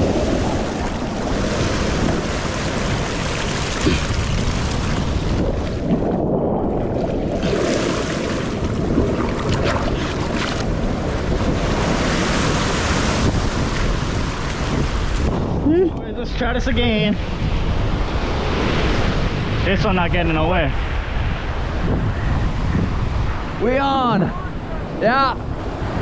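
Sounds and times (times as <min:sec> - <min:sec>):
surf breaking on rocky shore: 0:00.0 - 0:15.8
wind buffeting microphone: 0:00.0 - 0:26.0.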